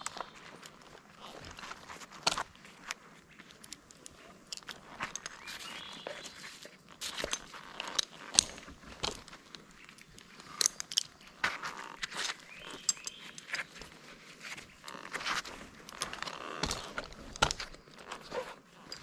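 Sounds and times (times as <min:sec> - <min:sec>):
twigs crunching and snapping: 0:00.0 - 0:19.0.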